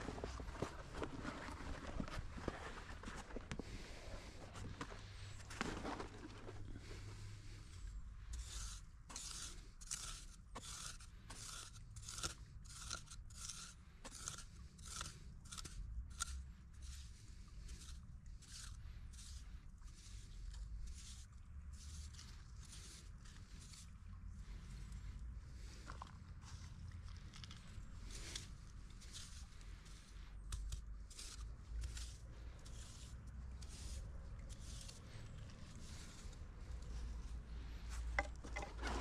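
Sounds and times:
short rasping strokes: 8.2s - 23.9s.

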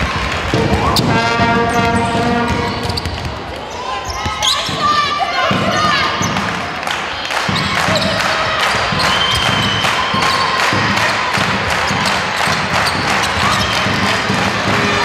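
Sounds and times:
basketball bouncing on wooden floor: 0.5s - 3.5s, 8.8s - 15.0s
shoes squeaking on floor: 0.8s - 5.0s, 11.9s - 14.2s.

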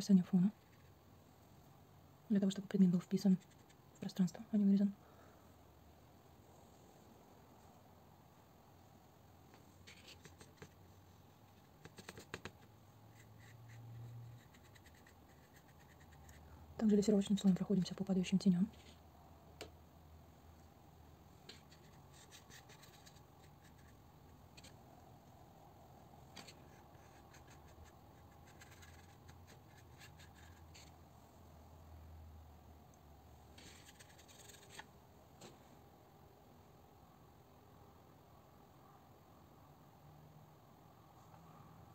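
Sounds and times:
low steady hum: 0.0s - 41.9s
brush scratching on paper: 3.3s - 3.8s, 11.8s - 16.4s, 21.5s - 24.0s, 26.4s - 30.9s, 33.6s - 34.8s.

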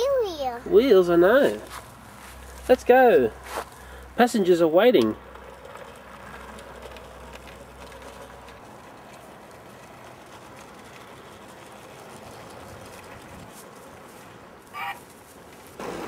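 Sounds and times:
toy locomotive running on track: 5.5s - 13.5s.

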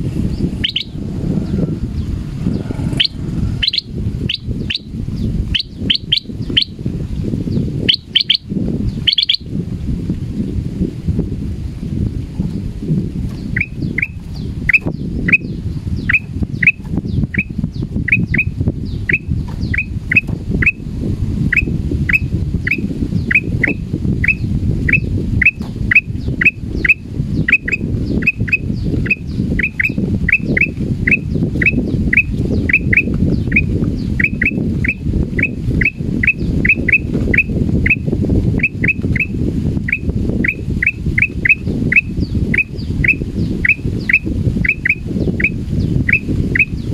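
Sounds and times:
loud low rumble: 0.0s - 5.6s.

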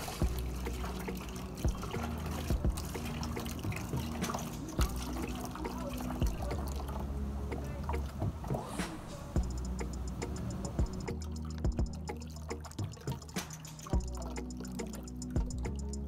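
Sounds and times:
liquid trickling and pouring: 0.0s - 9.4s, 10.5s - 16.0s
background music: 0.0s - 16.0s.

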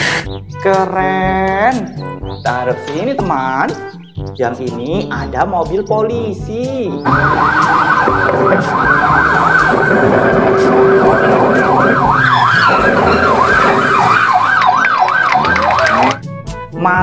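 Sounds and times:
toy siren warbling: 7.0s - 16.2s.

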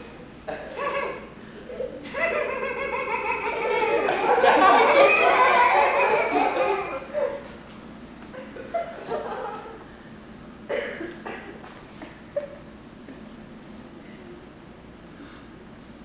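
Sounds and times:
audience laughing: 0.5s - 7.5s, 8.3s - 9.8s.

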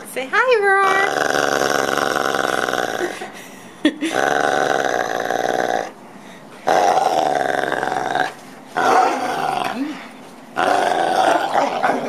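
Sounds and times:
dog growling: 0.8s - 3.2s, 4.1s - 6.0s, 6.6s - 10.0s, 10.6s - 12.0s.

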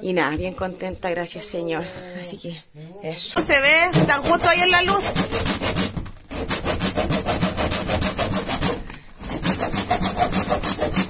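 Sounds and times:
hand saw sawing: 3.7s - 11.0s.

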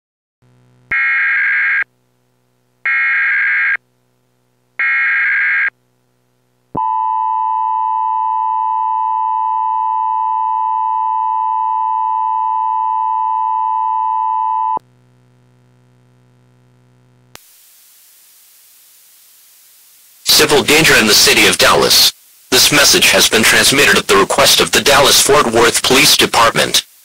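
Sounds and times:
screeching digital data tones: 0.9s - 1.9s, 2.9s - 3.8s, 4.8s - 5.7s.

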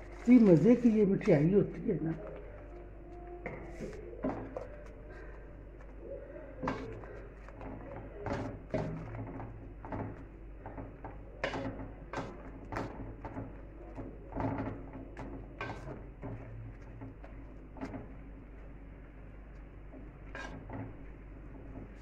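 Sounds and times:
thick mixture stirred: 0.0s - 22.0s
spatula scraping a metal pan: 20.3s - 20.7s.

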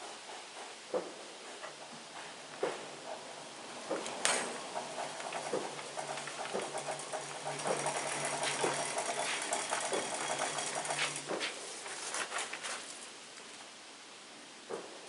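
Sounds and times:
sawmill head whirring: 1.0s - 12.9s.

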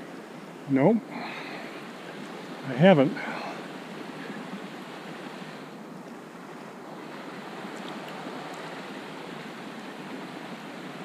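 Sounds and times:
creek rushing over rocks: 0.0s - 11.0s.

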